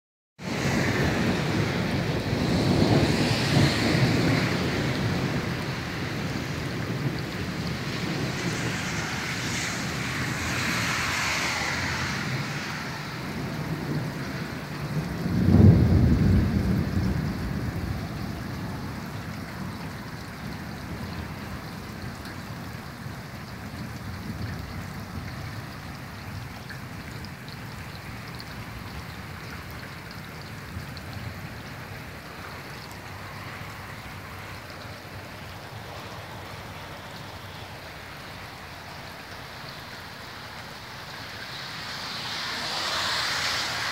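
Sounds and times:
loud low thunder rumble: 0:00.4 - 0:19.9
gusting wind: 0:00.4 - 0:43.9
heavy rain: 0:00.4 - 0:43.9.

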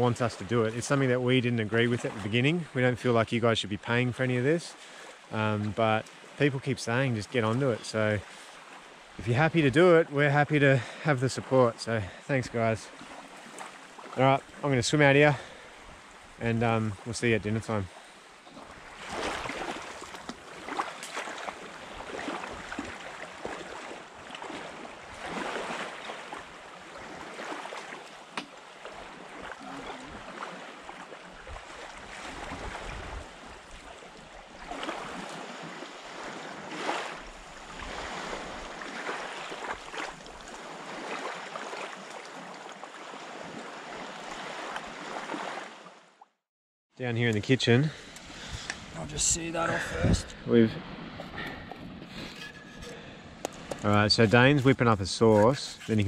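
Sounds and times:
small waves lapping: 0:00.0 - 0:03.2, 0:03.8 - 0:46.4, 0:47.6 - 0:56.0.

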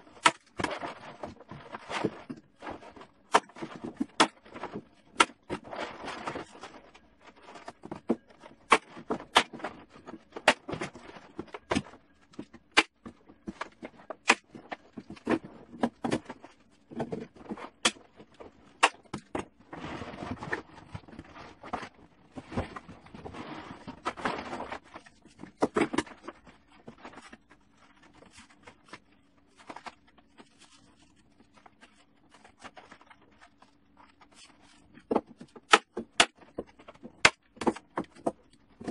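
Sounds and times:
plastic tarp rustling and crinkling: 0:00.5 - 0:07.8.

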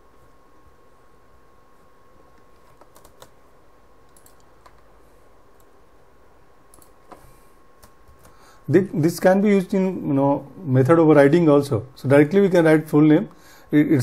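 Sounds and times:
computer keyboard keystrokes: 0:02.6 - 0:03.4, 0:04.1 - 0:04.9, 0:06.7 - 0:07.2, 0:07.8 - 0:08.4.

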